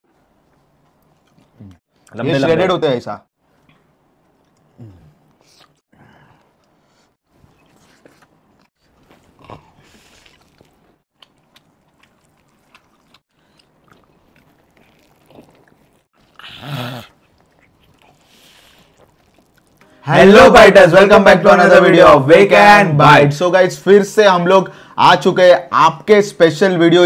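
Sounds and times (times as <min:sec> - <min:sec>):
chewing and slurping: 0:00.4 - 0:02.1, 0:06.4 - 0:19.8
voiced mouth sound: 0:04.6 - 0:05.8, 0:09.3 - 0:10.6, 0:14.6 - 0:19.8.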